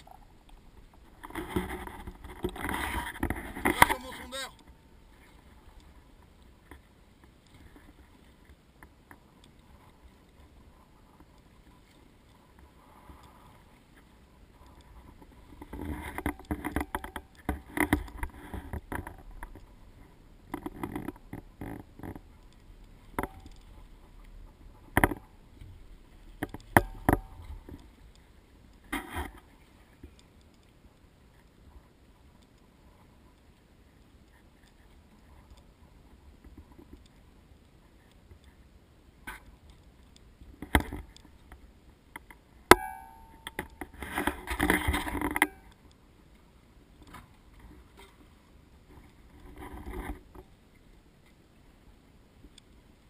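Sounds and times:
knocks and clunks on boat: 26.4 - 27.8.

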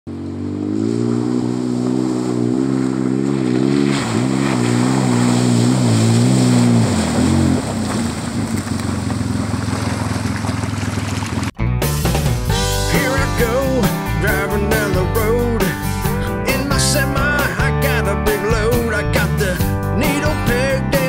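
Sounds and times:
muddy water splashing: 0.1 - 11.6
vehicle engine under throttle: 0.1 - 11.6.

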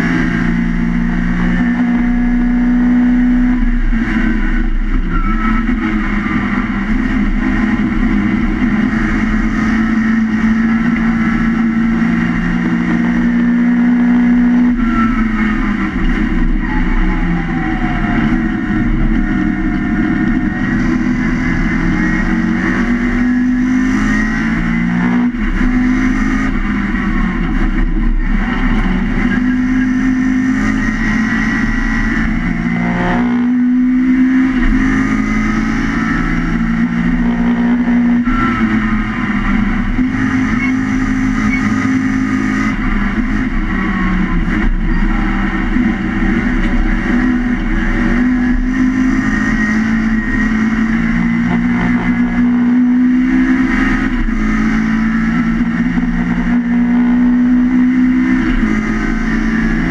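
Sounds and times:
high whine: 0.0 - 59.9
race car engine running hard: 0.0 - 59.9.

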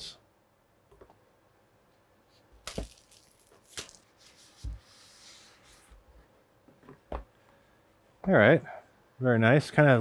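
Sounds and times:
plastic wrap crinkling: 2.6 - 4.4.

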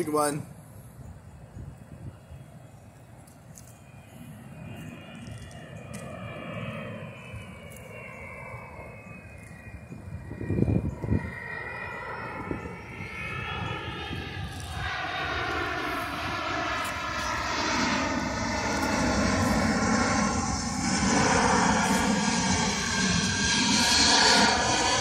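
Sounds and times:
jet aircraft passing overhead: 0.0 - 25.0.

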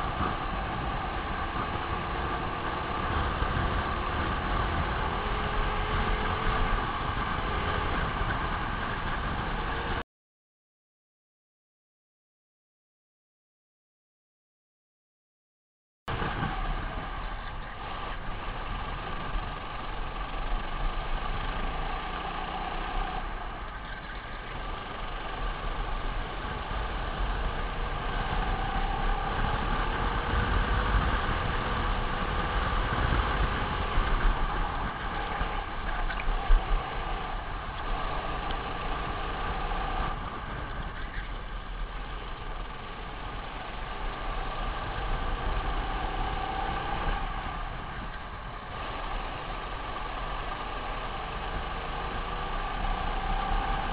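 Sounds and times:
racing kart engine revving: 16.1 - 53.9.

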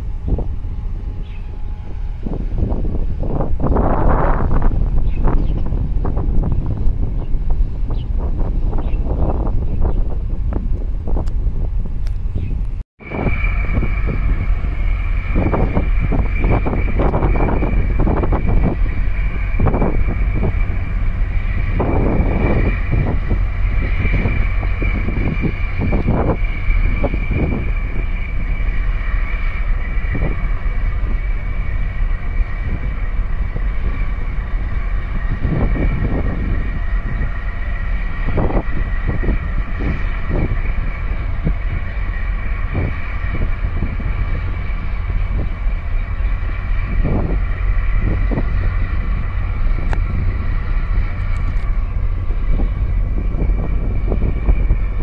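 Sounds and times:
high hum: 0.0 - 55.0
ship engine rumble and drone: 0.0 - 55.0
wind buffeting microphone: 0.0 - 55.0.

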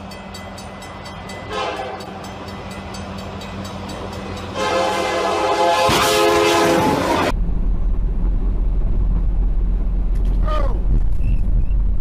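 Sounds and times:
train rumble: 0.0 - 12.0
locomotive air horn blasts: 1.5 - 2.0, 4.5 - 7.3.

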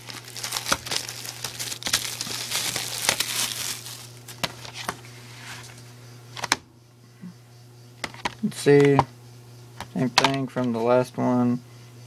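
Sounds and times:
plastic wrap crinkling: 0.0 - 5.0.

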